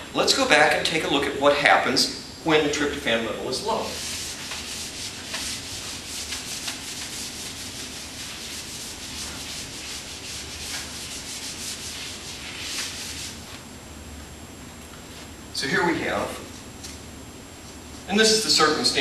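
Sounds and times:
eraser rubbing on whiteboard: 3.8 - 13.6.

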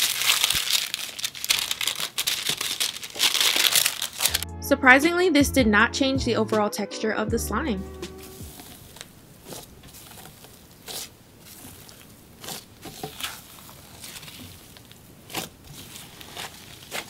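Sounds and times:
foil crinkling: 0.0 - 4.4, 8.2 - 17.0
sharp foil crackles: 0.0 - 4.4, 8.3 - 17.0
slime squishing: 0.0 - 4.4, 8.3 - 17.0.

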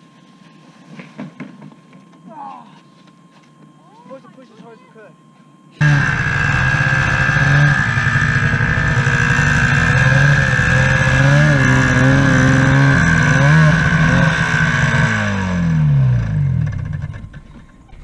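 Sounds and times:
snowmobile engine revving: 5.8 - 17.2.

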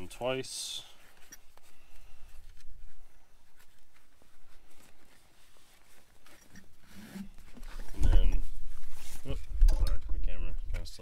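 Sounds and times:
nylon strap rustling: 1.0 - 9.5.

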